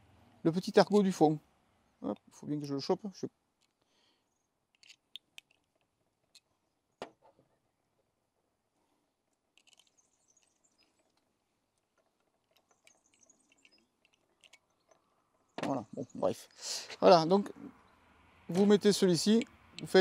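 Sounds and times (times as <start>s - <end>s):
small metal tools clicking: 4.7s - 6.5s, 9.6s - 11.2s, 12.2s - 15.0s.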